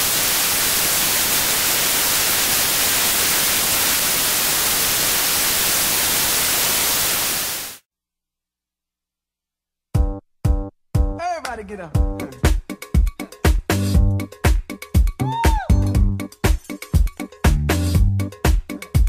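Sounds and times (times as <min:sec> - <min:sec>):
tv static white noise: 0:00.0 - 0:07.8.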